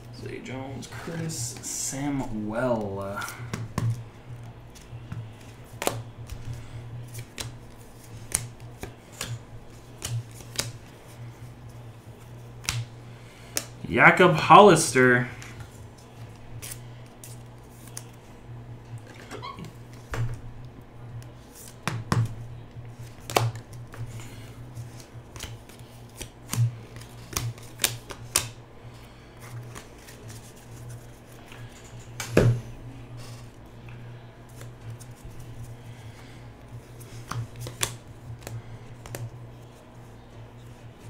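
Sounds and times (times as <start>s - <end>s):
steady low hum: 0.0s - 41.0s
cards clicking and rustling: 1.0s - 13.8s, 15.4s - 18.2s, 21.2s - 28.6s, 29.4s - 32.6s, 34.4s - 39.9s.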